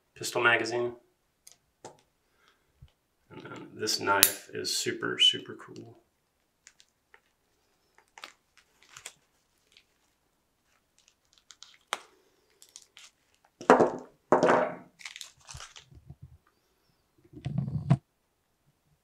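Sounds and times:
hands handling small figure: 5.8 - 14.0, 15.0 - 16.6
crunching handling noise: 6.6 - 13.9, 14.9 - 16.2.

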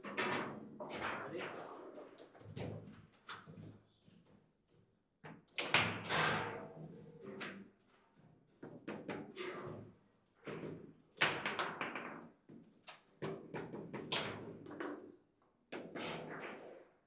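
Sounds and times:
table football knocks and clacks: 10.5 - 15.1.

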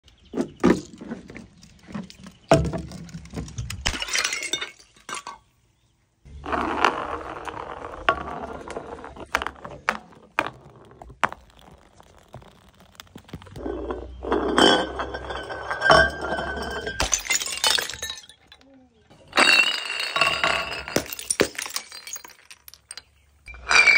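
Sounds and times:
glass bottles clinking and breaking: 2.4 - 5.5, 8.5 - 23.9.

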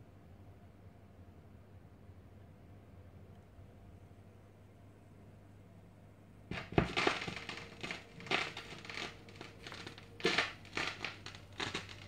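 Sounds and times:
faint steady hum: 0.0 - 12.0
vinyl record crackle and pops: 6.5 - 12.0.

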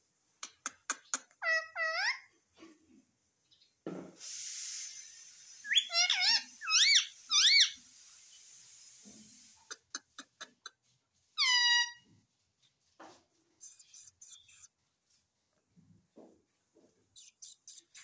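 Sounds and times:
parrot shrill calls: 1.4 - 2.3, 5.7 - 7.8, 11.4 - 12.0
steady hiss: 4.1 - 9.9.

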